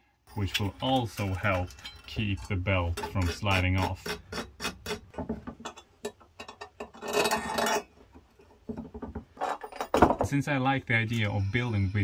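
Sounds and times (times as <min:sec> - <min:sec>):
small metal parts clinking: 0:00.2 - 0:02.4.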